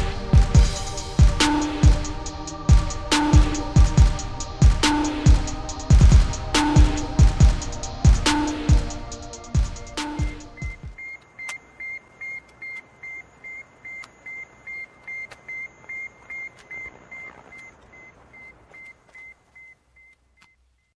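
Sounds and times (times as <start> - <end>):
electronic music: 0.0 - 11.0
short high radio beeps: 10.6 - 20.9.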